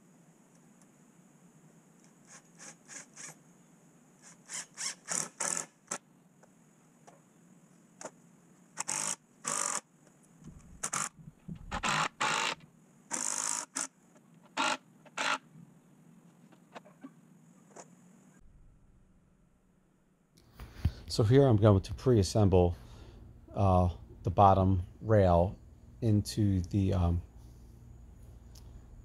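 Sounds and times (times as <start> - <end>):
cordless drill driving bolts into wood: 4.2 - 6.0, 8.8 - 9.9, 10.8 - 13.9, 14.5 - 15.4.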